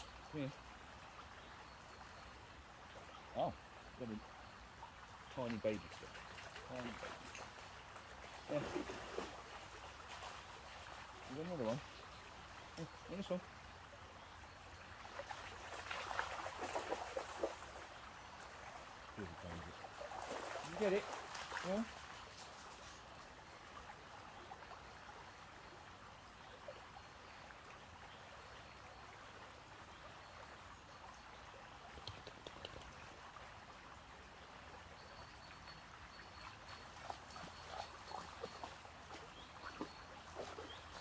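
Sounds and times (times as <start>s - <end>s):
stream running over stones: 0.0s - 41.0s
faint short clicks: 32.0s - 33.0s.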